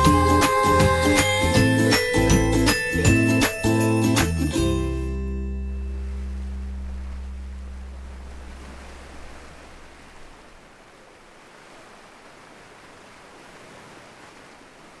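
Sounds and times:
acoustic song: 0.0 - 8.6
ocean surf: 0.0 - 15.0.

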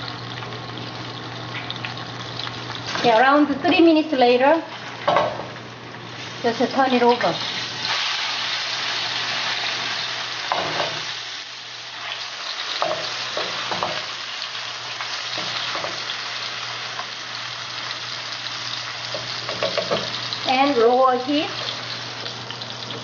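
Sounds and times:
fish sizzling in hot oil: 0.0 - 23.0.

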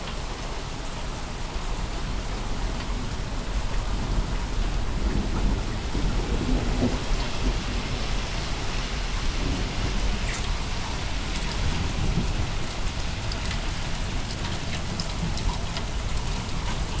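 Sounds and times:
heavy rain on pavement and cars: 0.0 - 17.0
deep rumble: 1.8 - 14.3.

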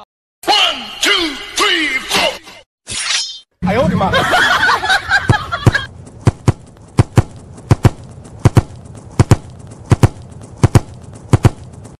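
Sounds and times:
horse hooves trotting: 4.6 - 12.0.

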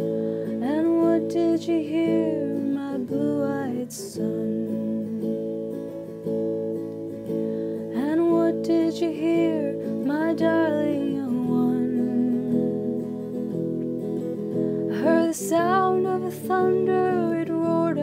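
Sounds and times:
person singing: 0.0 - 5.4, 7.9 - 13.0, 15.0 - 18.0
strummed acoustic guitar chords: 0.0 - 18.0.

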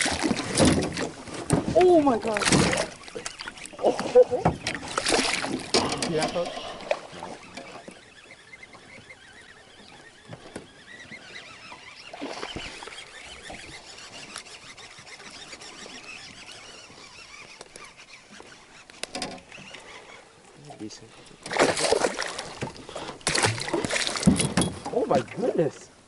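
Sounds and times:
small clicks of lure and line: 5.7 - 20.6.

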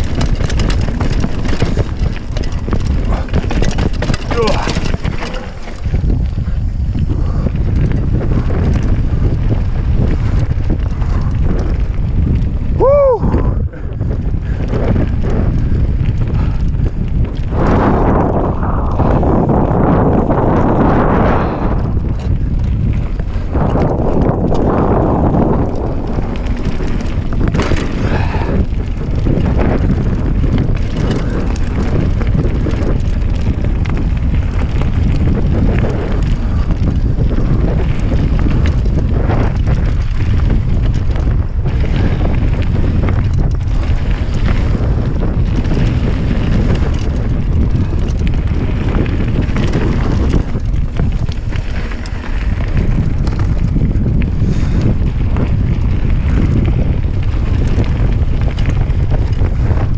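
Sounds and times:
tyres crunching on stones: 0.0 - 7.1, 22.0 - 59.0
bike rattling over bumps: 0.0 - 59.9
wind buffeting microphone: 0.0 - 59.9.

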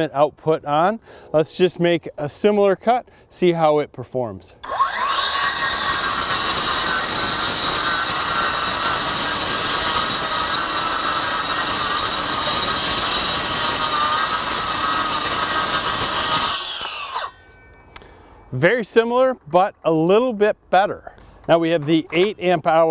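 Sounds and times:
circular saw cutting wood: 4.6 - 17.8.

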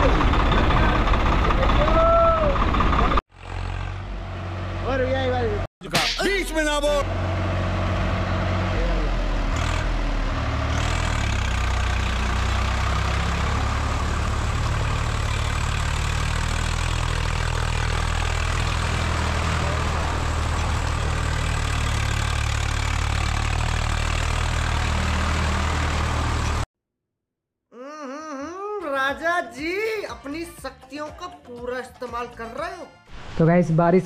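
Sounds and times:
tractor diesel engine running: 0.0 - 5.6, 6.3 - 26.7.

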